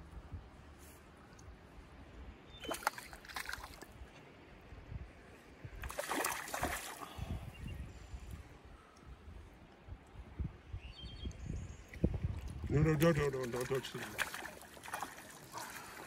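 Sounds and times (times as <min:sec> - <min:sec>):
fish thrashing and splashing: 0:02.6 - 0:03.8, 0:05.8 - 0:07.0, 0:13.4 - 0:16.0
rush of moving water: 0:05.8 - 0:07.4, 0:12.3 - 0:16.0.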